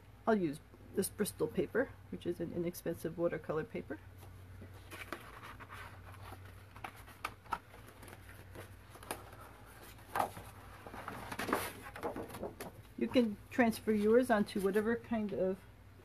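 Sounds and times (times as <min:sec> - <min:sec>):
paper rustling: 0:04.6 - 0:12.9.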